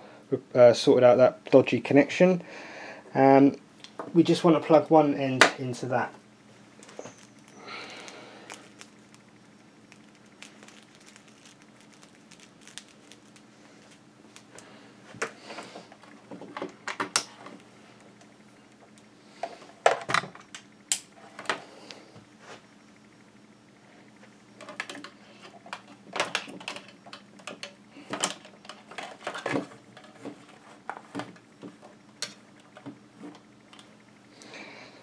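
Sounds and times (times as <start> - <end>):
cable rustling: 6.7 - 9.3, 9.9 - 19.1.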